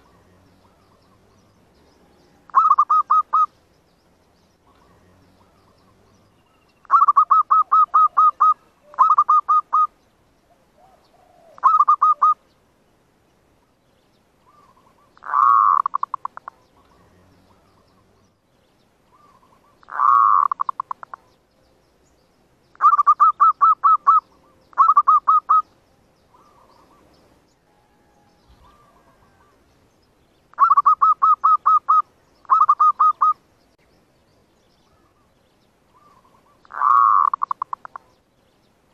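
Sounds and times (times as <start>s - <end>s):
dove cooing: 2.3s - 3.5s, 6.8s - 9.9s, 10.5s - 12.4s, 14.4s - 18.2s, 19.1s - 21.4s, 22.8s - 25.7s, 26.3s - 27.1s, 27.7s - 29.6s, 30.6s - 33.4s, 35.9s - 38.1s.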